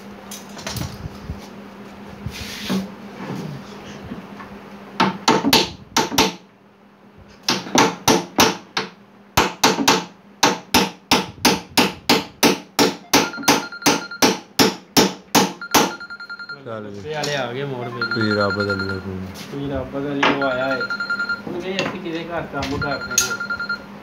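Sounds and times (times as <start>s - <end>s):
hammer striking cabinet: 5.0s - 6.4s, 7.5s - 16.0s.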